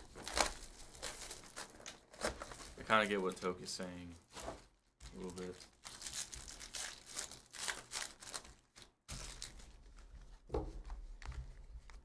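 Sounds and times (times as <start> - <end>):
foil wrapper crinkling and tearing: 0.0 - 3.5, 5.0 - 9.8.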